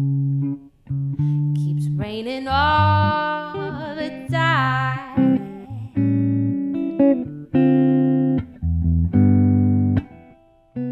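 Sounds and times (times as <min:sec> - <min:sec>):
jazz guitar chords ringing: 0:00.0 - 0:10.9
woman singing: 0:01.5 - 0:06.2.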